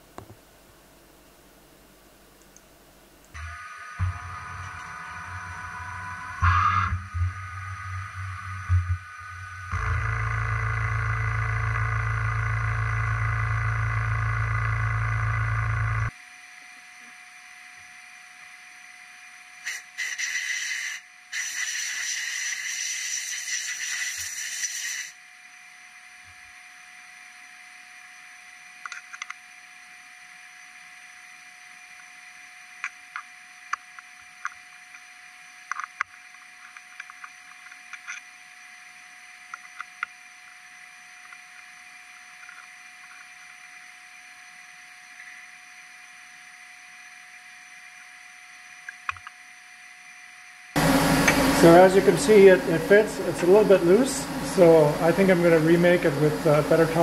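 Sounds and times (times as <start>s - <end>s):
faint steady hum: 0.0s - 21.4s, 24.2s - 57.0s
hiss: 19.6s - 25.3s
milling machine spindle and coolant spray: 19.7s - 25.2s, 50.8s - 57.0s.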